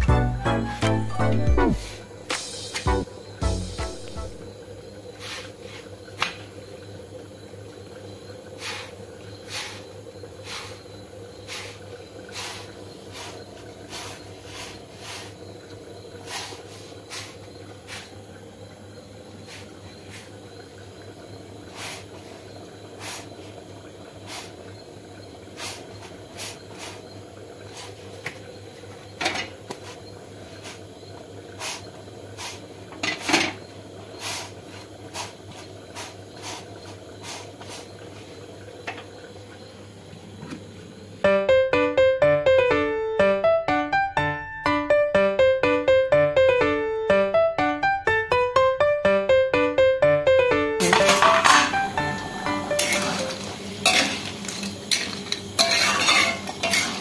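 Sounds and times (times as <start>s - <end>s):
steady low hum: 0.0s - 26.1s.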